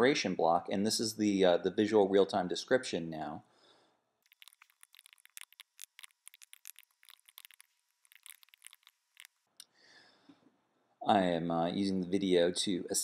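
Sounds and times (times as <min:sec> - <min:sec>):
keyboard typing: 0:04.3 - 0:09.4.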